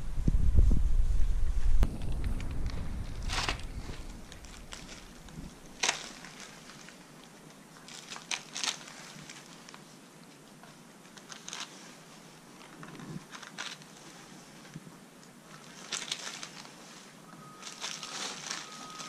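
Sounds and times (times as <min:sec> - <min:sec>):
scratchy rustles and snaps: 0:01.8 - 0:19.0
cord pulled through hide: 0:02.0 - 0:07.0, 0:11.0 - 0:14.8, 0:15.5 - 0:19.0.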